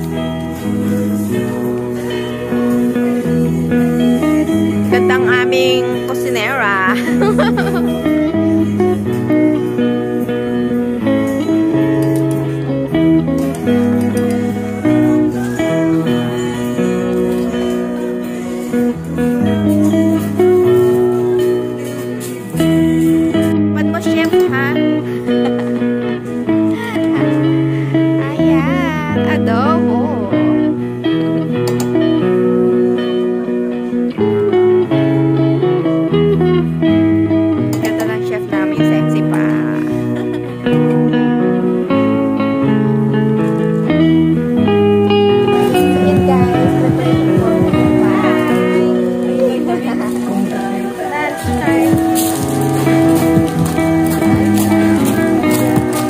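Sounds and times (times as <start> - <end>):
instrumental music with held notes: 0.0 - 56.0.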